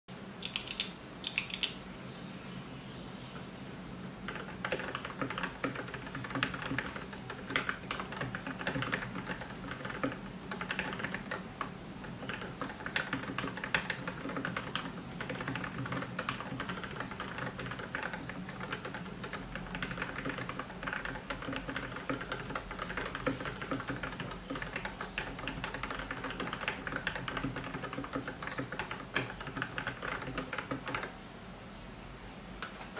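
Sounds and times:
mechanical keyboard typing: 0.4s - 1.8s, 4.3s - 31.2s.

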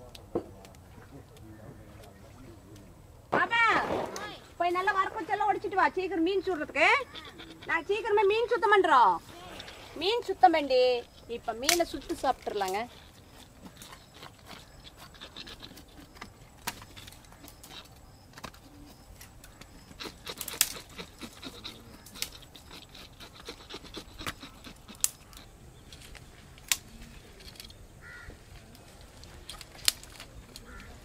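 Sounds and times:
small clicks and rustling: 11.0s - 27.8s, 28.5s - 31.0s
dry sticks snapping: 11.2s - 18.6s, 19.2s - 31.0s.

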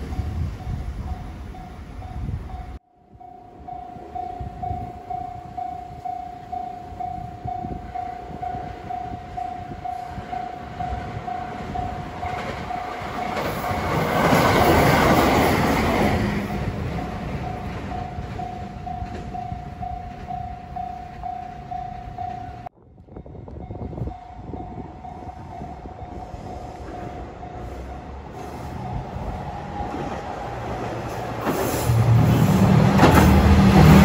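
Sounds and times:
diesel railcar engine: 0.0s - 34.0s
train wheel clatter: 10.9s - 20.5s, 29.7s - 34.0s.

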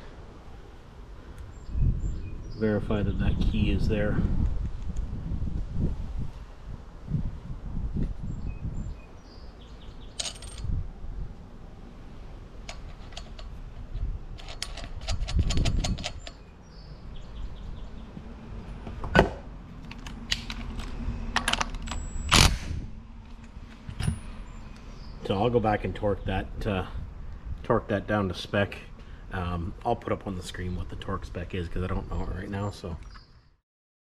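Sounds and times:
metal parts clinking: 10.2s - 10.7s, 12.6s - 16.4s
cordless impact tool burst: 22.0s - 22.8s.

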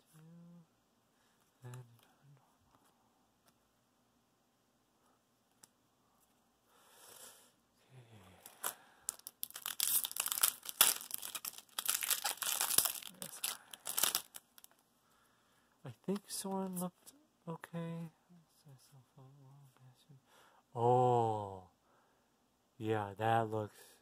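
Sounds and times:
foil wrapper crinkling: 8.5s - 14.8s.

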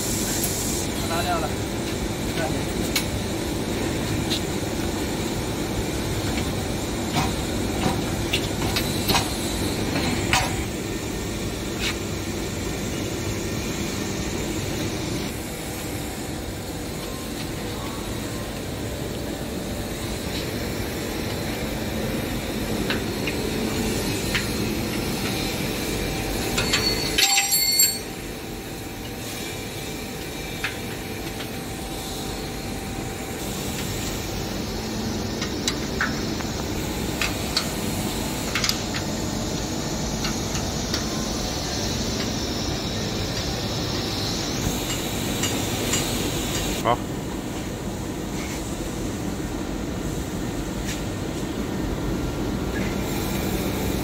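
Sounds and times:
workshop machinery hum: 0.0s - 54.0s
metal tools clinking on bolts: 26.5s - 28.1s.

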